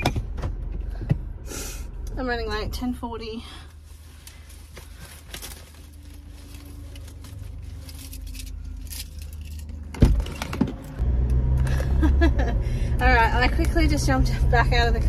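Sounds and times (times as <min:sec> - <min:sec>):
car engine hum: 0:00.0 - 0:15.0
keys jangling: 0:07.8 - 0:09.8.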